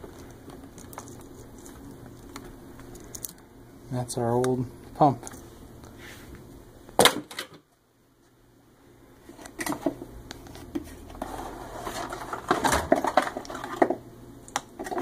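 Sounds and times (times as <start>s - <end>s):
parts clattering: 11.2s - 14.0s.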